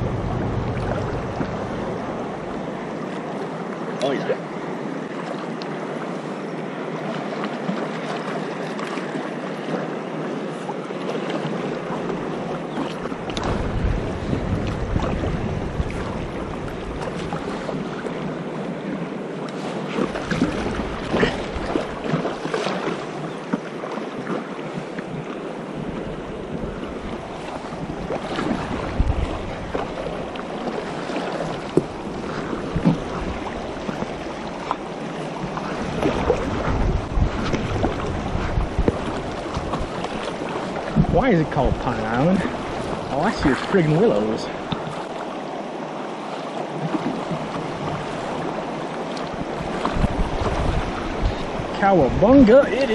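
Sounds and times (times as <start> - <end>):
wind buffeting microphone: 0.0 - 3.8, 9.6 - 46.1, 46.7 - 52.9
paddle stroke splashes: 0.0 - 52.9
river water rushing and splashing: 0.0 - 52.9.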